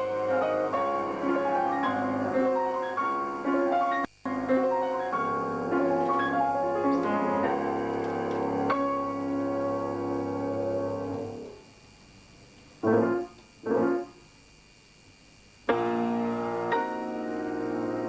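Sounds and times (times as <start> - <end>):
classical keyboard solo: 0.0 - 11.5, 15.7 - 18.0.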